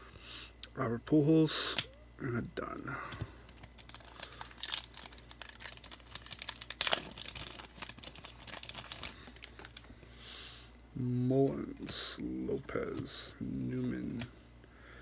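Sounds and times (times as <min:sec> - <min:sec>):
wrapper crinkling: 0:03.4 - 0:10.0
cards being handled: 0:11.4 - 0:14.4.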